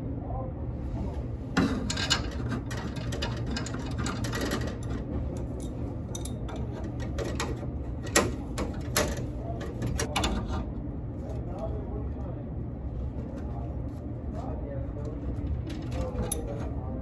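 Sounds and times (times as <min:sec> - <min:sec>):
steady low hum: 0:00.0 - 0:17.0
metal wrenches clinking on fittings: 0:01.8 - 0:09.2, 0:15.7 - 0:16.7.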